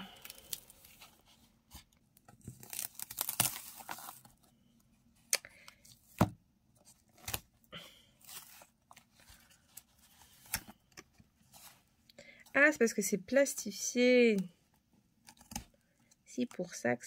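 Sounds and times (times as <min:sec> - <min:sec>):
cardboard tearing: 0:02.5 - 0:04.3.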